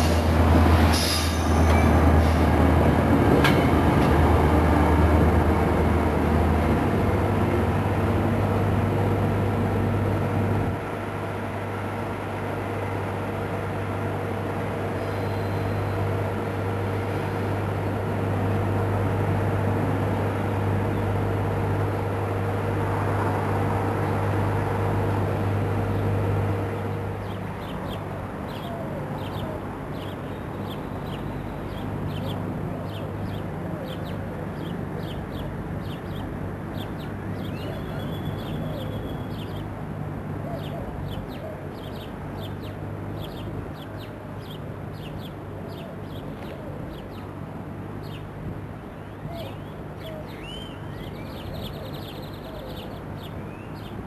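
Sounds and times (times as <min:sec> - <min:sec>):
diesel locomotive humming: 0:00.0 - 0:46.0
low train rumble: 0:00.0 - 0:54.0
birds calling: 0:26.8 - 0:39.7, 0:40.4 - 0:47.3, 0:48.9 - 0:54.0.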